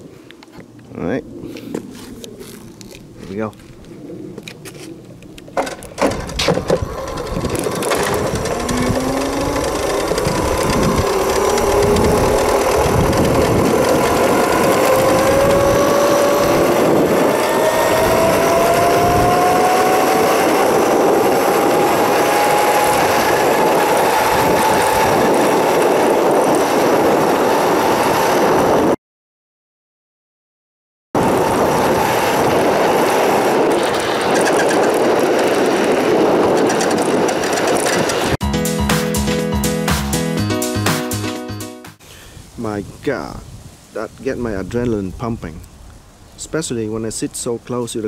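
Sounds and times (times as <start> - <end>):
wind and tyre noise: 0.0 - 29.0, 31.2 - 38.4, 42.0 - 48.0
electric scooter motor whining: 5.6 - 29.0, 31.2 - 38.4.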